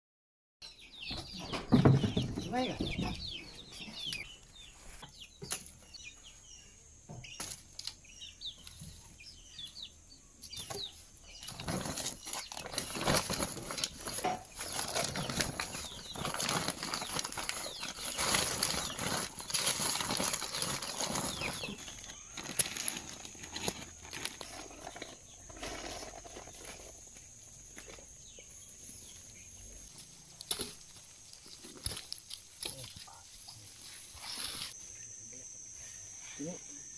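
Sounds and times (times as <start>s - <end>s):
paper sack rustling and crumpling: 11.4s - 27.1s.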